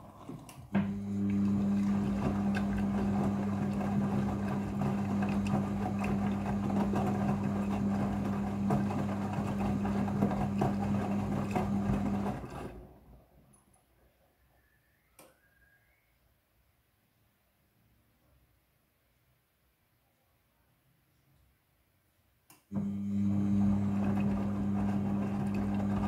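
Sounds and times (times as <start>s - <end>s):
washing machine motor hum: 0.0s - 13.0s, 22.7s - 26.0s.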